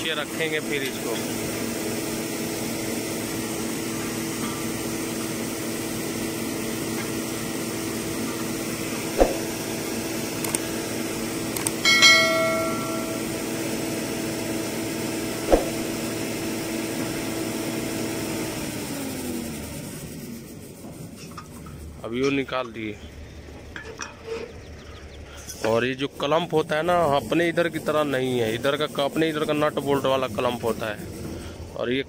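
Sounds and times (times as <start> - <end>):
truck engine running: 0.0 - 32.0
sharp metal knocks: 11.8 - 13.3
ringing steel clang: 11.8 - 13.5.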